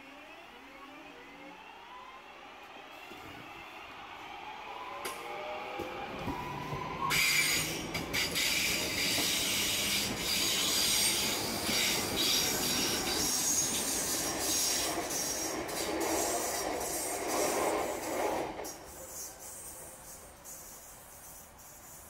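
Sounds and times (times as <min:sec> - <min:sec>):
train wheels squealing: 0:05.0 - 0:22.0
wheels rumbling on rails: 0:05.8 - 0:20.0.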